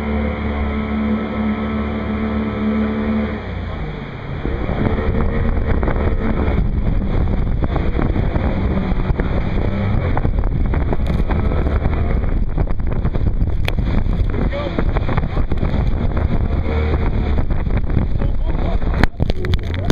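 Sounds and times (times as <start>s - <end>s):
whitewater rushing: 0.0s - 19.9s
wind buffeting microphone: 0.0s - 19.9s.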